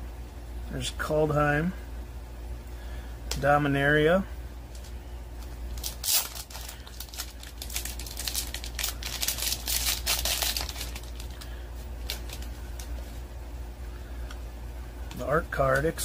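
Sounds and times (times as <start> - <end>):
plastic bag crinkling: 5.7 - 13.2.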